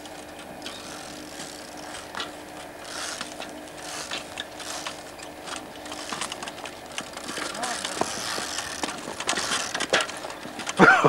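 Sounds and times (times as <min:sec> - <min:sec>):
bicycle freewheel ratcheting clicks: 0:00.6 - 0:10.8
tyres scraping on stone: 0:02.9 - 0:10.4.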